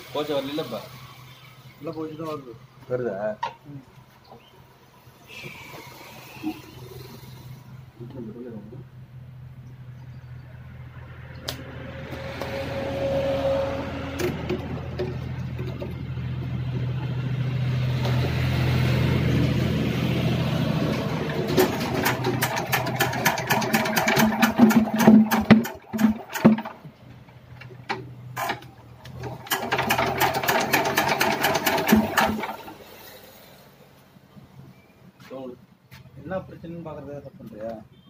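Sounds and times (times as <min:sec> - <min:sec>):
engine cranking whir: 0:05.0 - 0:08.2, 0:10.8 - 0:34.0
diesel engine firing knocks: 0:13.8 - 0:19.8, 0:20.6 - 0:28.6.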